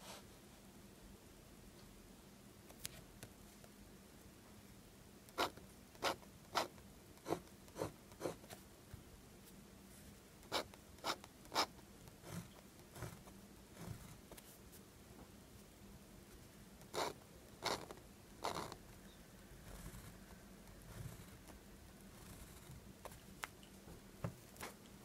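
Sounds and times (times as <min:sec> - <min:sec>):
fountain pen scratching paper: 0:05.3 - 0:08.4, 0:10.5 - 0:14.3, 0:16.8 - 0:18.8, 0:19.6 - 0:20.2, 0:20.8 - 0:21.4.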